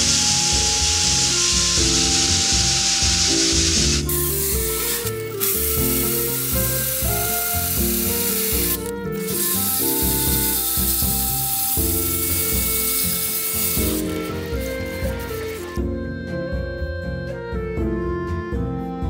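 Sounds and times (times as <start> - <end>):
sanding disc on wood: 0.0 - 15.7
background music: 0.0 - 19.0.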